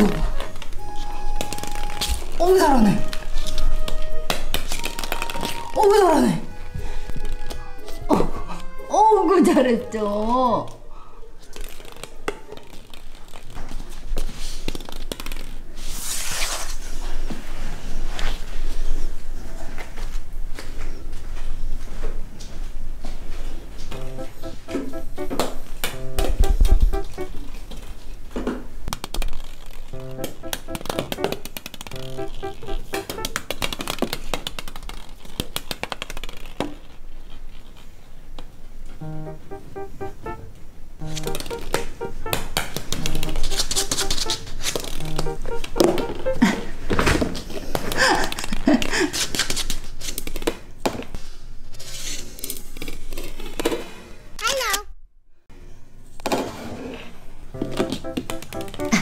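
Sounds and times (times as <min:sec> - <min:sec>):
plastic balls knocking on wooden floor: 0:00.0 - 0:06.1, 0:07.0 - 0:07.6, 0:11.6 - 0:15.7, 0:28.4 - 0:36.9, 0:41.1 - 0:48.9, 0:57.6 - 0:59.0
background music: 0:00.0 - 0:10.5, 0:24.0 - 0:27.4, 0:29.9 - 0:33.4, 0:39.0 - 0:46.7, 0:57.5 - 0:59.0.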